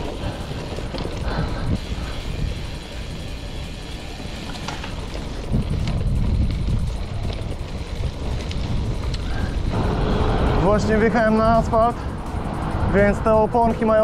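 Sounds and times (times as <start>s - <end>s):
small clicks from gravel: 0.0s - 1.6s, 2.9s - 9.7s
bike tyre rumble on gravel: 0.0s - 14.0s
wind buffeting microphone: 0.0s - 14.0s.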